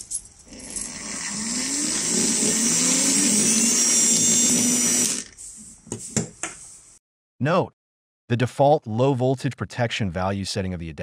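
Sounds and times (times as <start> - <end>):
small electric motor whining: 0.5 - 5.4.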